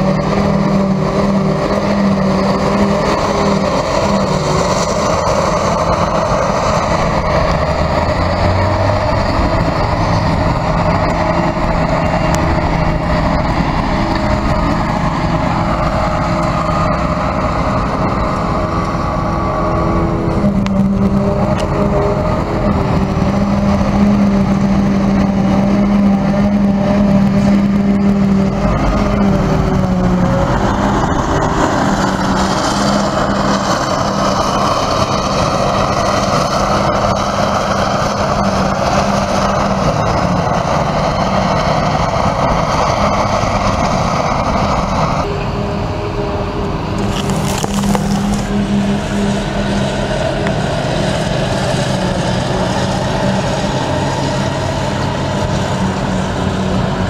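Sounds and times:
forage harvester chopping grass: 47.0s - 57.0s.

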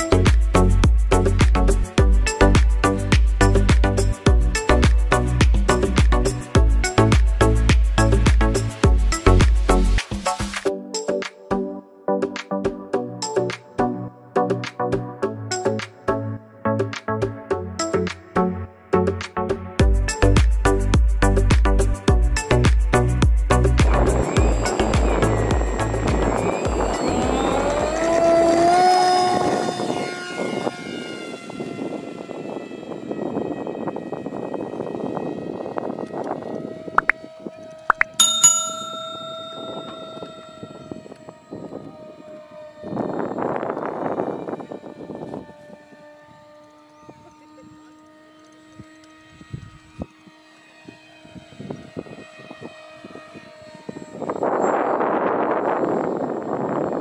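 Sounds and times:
electric motor and propeller whining: 0.0s - 10.6s, 19.8s - 57.0s
high whine falling in pitch: 23.8s - 32.1s, 34.8s - 44.5s.

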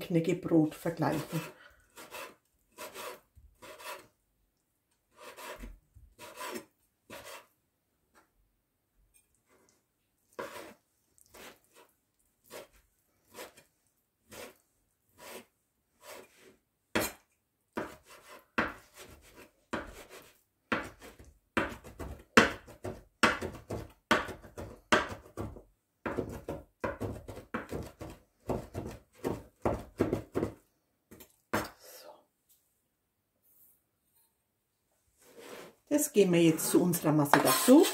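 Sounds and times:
knife chopping on cutting board: 17.0s - 17.2s, 17.8s - 30.6s.

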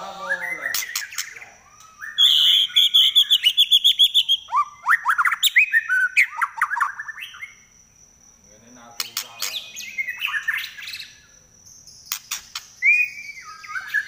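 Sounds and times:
bird singing: 0.0s - 14.0s
bird clicks: 9.0s - 9.6s, 12.1s - 12.8s.

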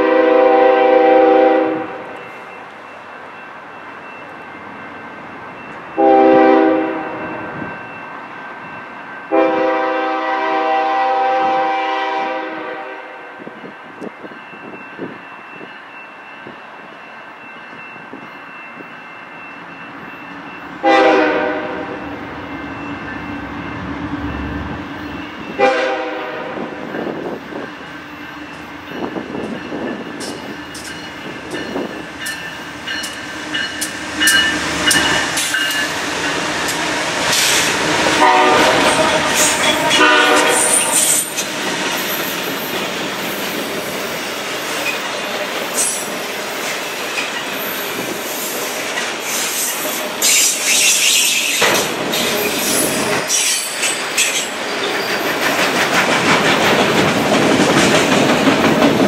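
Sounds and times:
locomotive horn blasts: 0.0s - 2.2s, 6.0s - 7.2s, 9.3s - 13.5s, 20.8s - 22.1s, 25.5s - 26.8s, 38.0s - 41.3s
train rumble: 19.8s - 59.0s.

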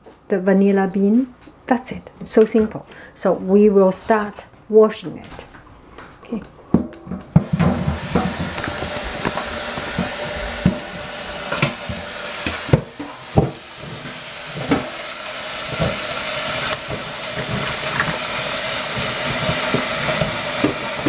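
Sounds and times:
faucet water running into sink: 7.4s - 21.0s.

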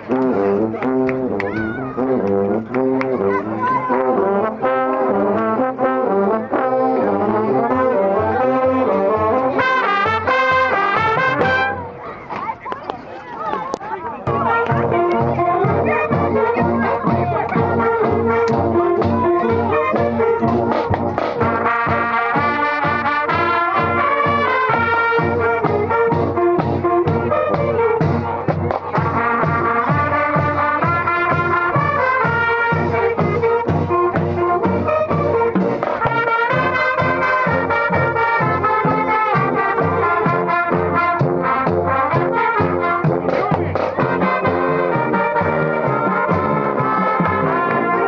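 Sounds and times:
loud brass: 0.0s - 12.0s, 14.3s - 48.0s
steady drum beat: 14.3s - 48.0s.

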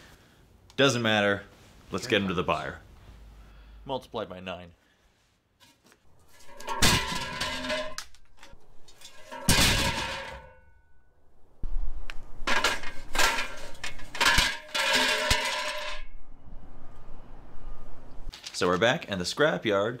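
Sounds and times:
metal frames clattering and clanging: 5.7s - 11.0s, 12.4s - 16.2s.

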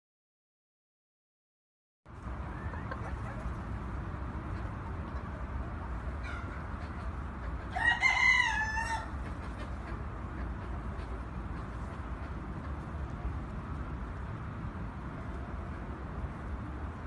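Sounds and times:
rooster crowing: 7.7s - 9.2s
steady low rumble: 9.0s - 17.0s.

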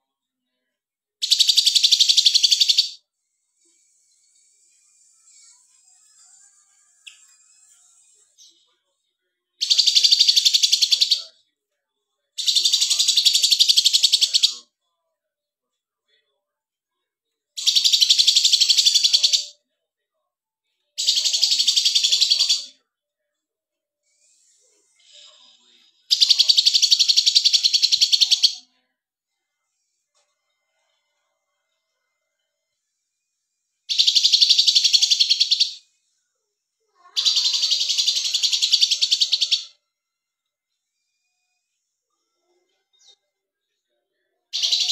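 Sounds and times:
lovebird chattering trills: 1.2s - 3.0s, 9.6s - 11.2s, 12.4s - 14.5s, 17.6s - 19.5s, 21.0s - 22.7s, 26.1s - 28.6s, 33.9s - 35.8s, 37.2s - 39.7s, 44.6s - 44.9s
songbird trilling: 1.2s - 3.0s, 9.7s - 11.2s, 33.9s - 35.8s.

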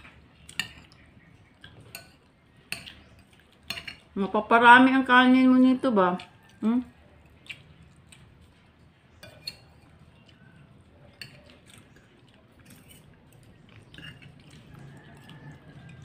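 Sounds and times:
cutlery scraping on a plate: 0.0s - 1.0s, 1.6s - 4.1s, 9.2s - 16.0s.

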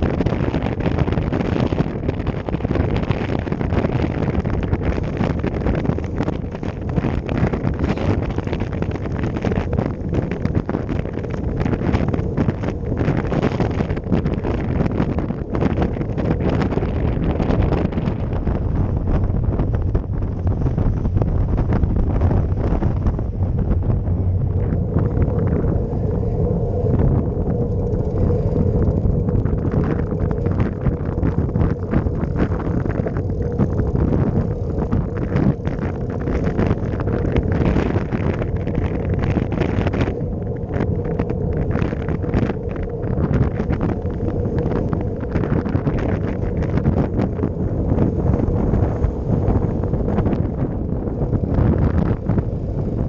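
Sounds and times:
tyres rumbling on road: 0.0s - 53.0s
wind buffeting microphone: 0.0s - 53.0s.

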